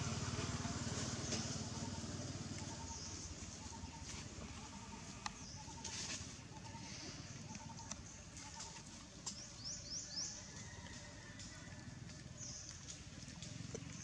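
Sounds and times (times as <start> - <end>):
birds chirping: 1.0 - 10.9.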